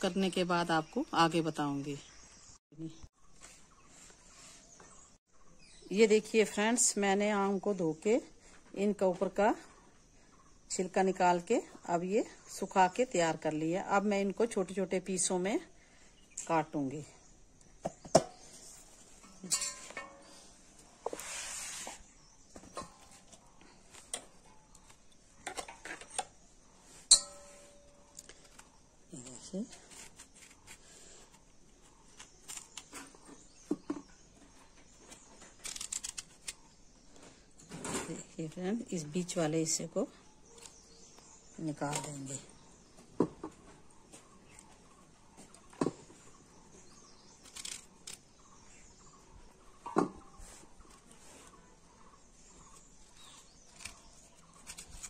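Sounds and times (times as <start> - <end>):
ringing metal clang: 19.4 - 20.2, 27.1 - 28.1
metal clinks on steel bowl: 27.1 - 27.9.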